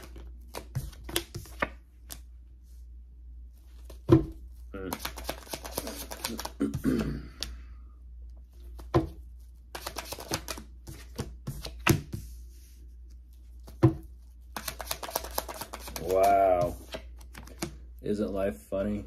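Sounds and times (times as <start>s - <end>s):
cards being shuffled: 0.0s - 2.3s, 3.6s - 6.6s, 8.5s - 17.8s.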